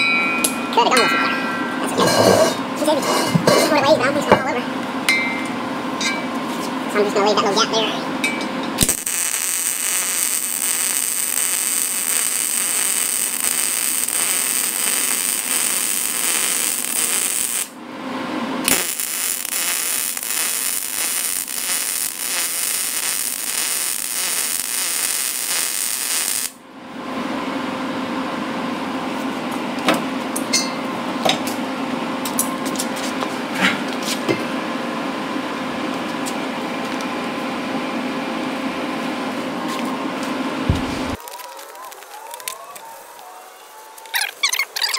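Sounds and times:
welding arc crackling: 0:08.8 - 0:17.8, 0:18.6 - 0:26.6.

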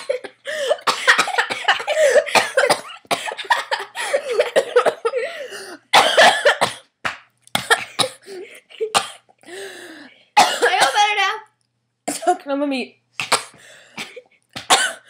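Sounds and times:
girl coughing hard: 0:00.0 - 0:06.9, 0:07.6 - 0:09.3, 0:10.4 - 0:11.2, 0:12.1 - 0:12.4, 0:13.2 - 0:15.0.

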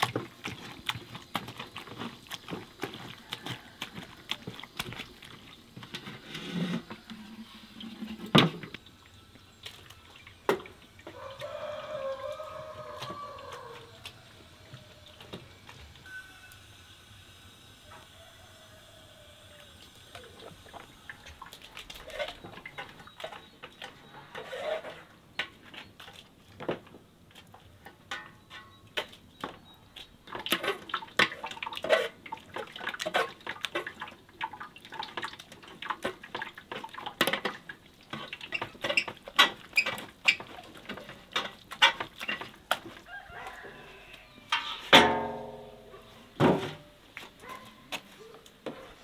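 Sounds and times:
bowl scraping metal pot: 0:00.0 - 0:08.9, 0:20.2 - 0:25.2, 0:30.4 - 0:34.0, 0:44.5 - 0:46.9
loud metal clank: 0:44.6 - 0:46.8.

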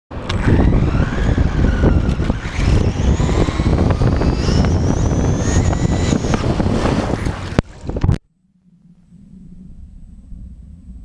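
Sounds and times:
wheels on rough tarmac: 0:00.1 - 0:08.2
wind rumble on microphone: 0:00.1 - 0:11.0
electric motor whining: 0:00.2 - 0:07.6.

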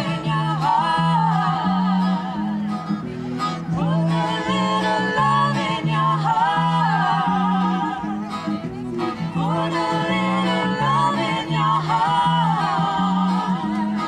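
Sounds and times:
person singing: 0:00.0 - 0:08.5, 0:09.1 - 0:14.0
acoustic guitar: 0:00.0 - 0:14.0.

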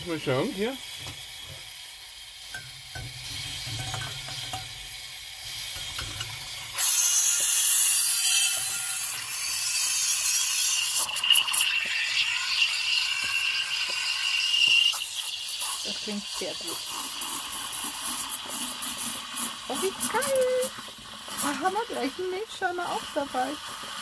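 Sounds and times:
loud steam hiss: 0:00.0 - 0:24.0
squealing tone of frothing milk: 0:05.6 - 0:23.7.

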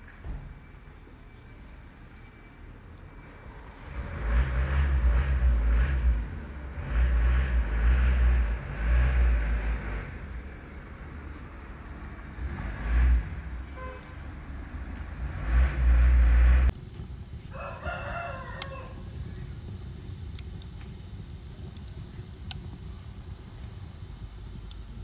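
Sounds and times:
rooster crowing: 0:17.5 - 0:19.2.

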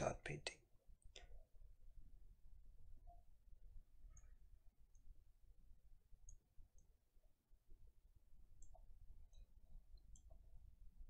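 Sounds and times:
computer mouse clicks: 0:04.1 - 0:05.1, 0:06.2 - 0:06.9, 0:08.6 - 0:10.5.

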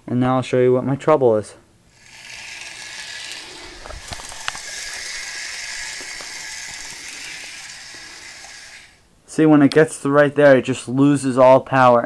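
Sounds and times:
model train motor whirring: 0:01.9 - 0:09.0.

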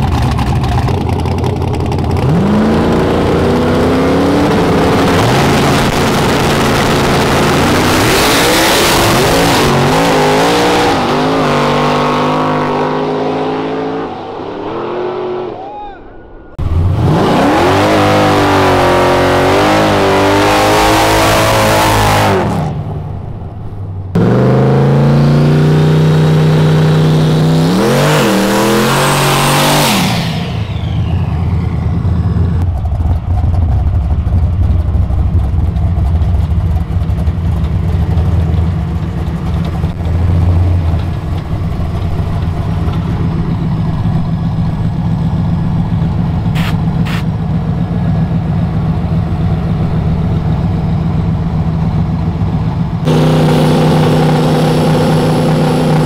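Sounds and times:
low steady engine rumble: 0:00.0 - 0:05.2, 0:30.5 - 0:56.0
race car engines at full throttle: 0:00.0 - 0:56.0.

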